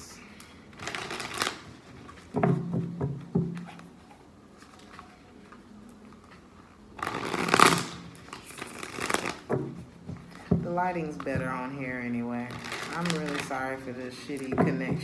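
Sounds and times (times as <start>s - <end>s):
cards riffle shuffling: 7.0s - 9.5s.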